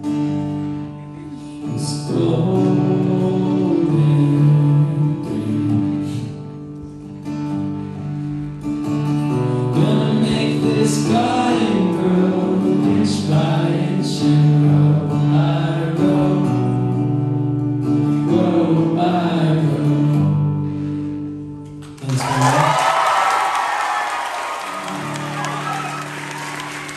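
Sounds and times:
strummed acoustic guitar: 0.0 - 22.0
man singing: 1.0 - 6.5, 9.6 - 17.1, 17.9 - 20.7
audience clapping and cheering: 21.8 - 26.9.

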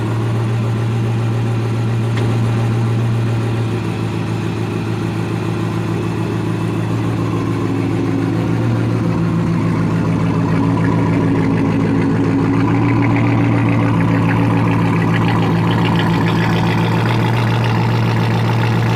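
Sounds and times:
car engine idling: 0.0 - 18.9.

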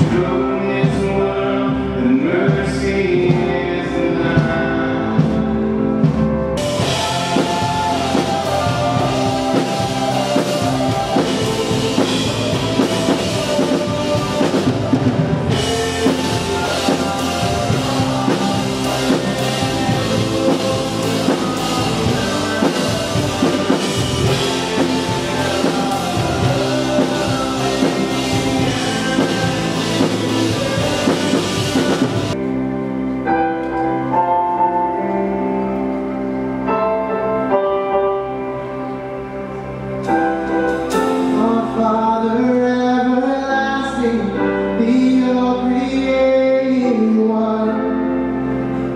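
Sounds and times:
guitars: 0.0 - 36.9
sustained keyboard notes: 0.7 - 42.2
drums and cymbals: 5.2 - 32.4.

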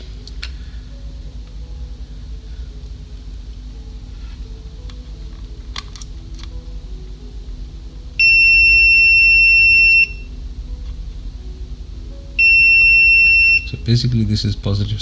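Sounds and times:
multimeter beeping high tone: 8.2 - 10.4, 12.4 - 13.9.

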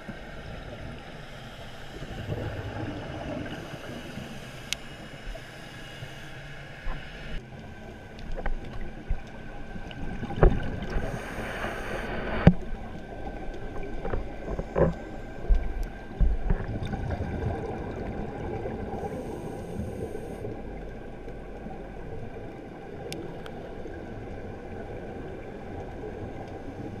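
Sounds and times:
underwater wash with bubbles: 0.0 - 27.0
short bursts of hiss: 11.0 - 12.4.

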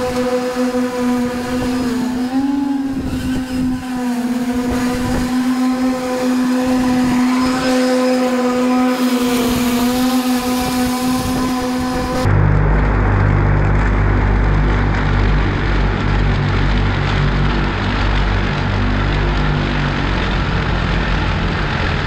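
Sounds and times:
electric motor whining: 0.0 - 22.0.

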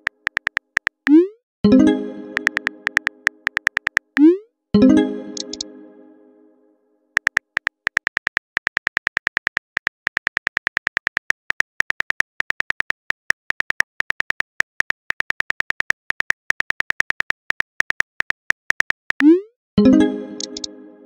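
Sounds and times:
phone keyboard clicks: 0.0 - 1.1, 2.4 - 4.2, 5.4 - 5.6, 7.2 - 19.2.

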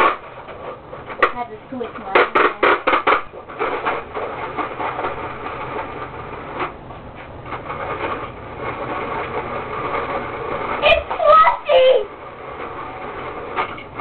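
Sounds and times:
sharp clacks: 0.0 - 14.0
toy gears rattling: 0.0 - 14.0.

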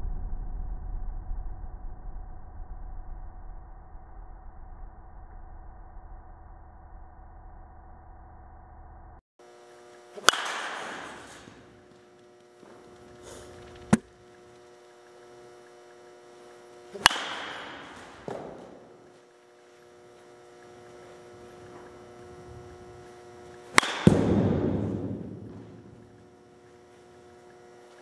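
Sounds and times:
steady electrical hum: 9.4 - 28.0
baseball bat hitting balls: 10.1 - 14.6, 16.3 - 28.0.

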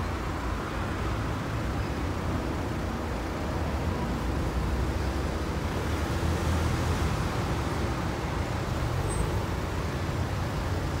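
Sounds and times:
slow road traffic rumble: 0.0 - 11.0.

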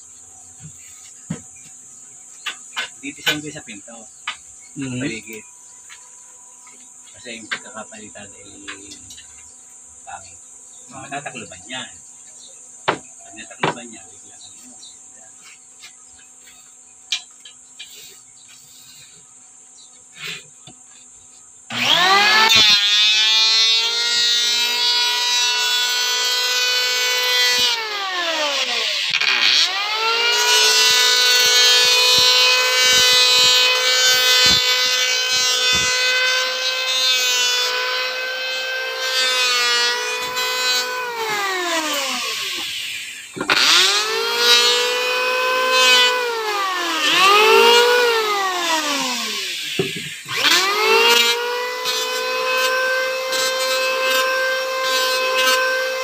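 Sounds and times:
electric wood planer whining: 21.7 - 56.0.

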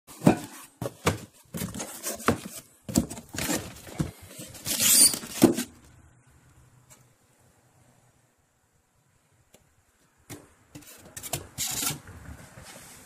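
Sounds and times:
cardboard box knocks and thumps: 0.1 - 4.2
rustling scrape: 0.1 - 5.8, 10.8 - 13.0.

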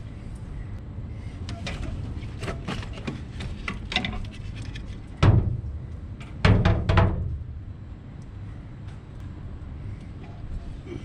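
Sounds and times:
plastic tank knocking: 6.4 - 7.3
plastic tank thumping: 6.4 - 7.4.

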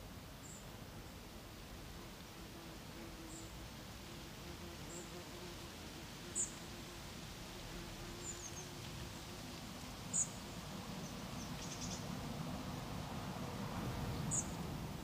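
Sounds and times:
small bird chirping: 11.6 - 12.0.

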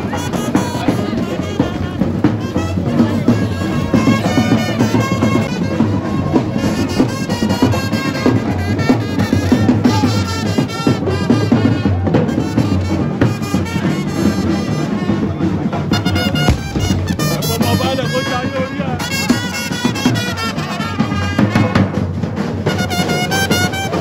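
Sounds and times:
music with drums: 0.0 - 24.0.

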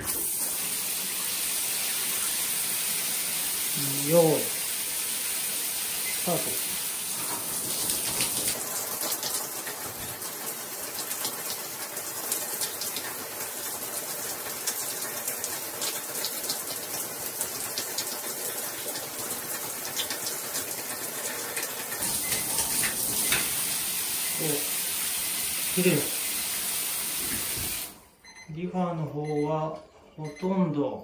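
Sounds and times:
shower spray hissing: 22.0 - 28.0.

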